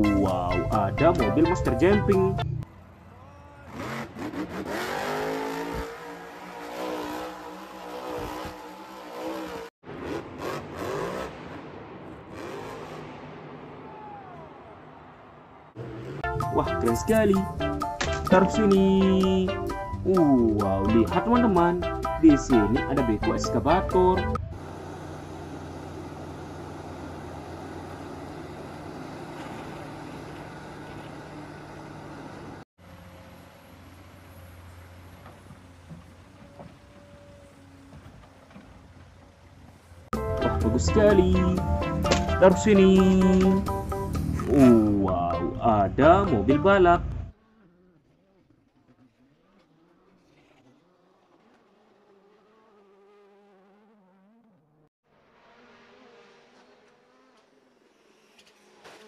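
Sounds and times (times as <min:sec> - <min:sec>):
truck engines revving hard: 0:01.8 - 0:45.0, 0:46.4 - 0:59.0
excavator diesel engine running: 0:24.4 - 0:42.5.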